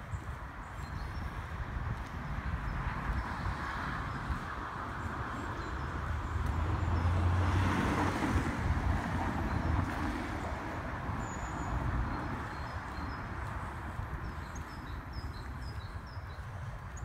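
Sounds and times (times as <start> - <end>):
road traffic hum: 0.0 - 17.0
vehicle passing: 2.8 - 14.1.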